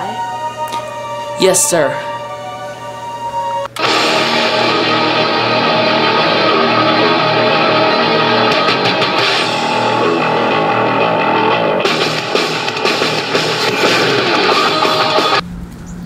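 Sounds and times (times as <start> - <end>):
heavy metal music: 0.0 - 15.4.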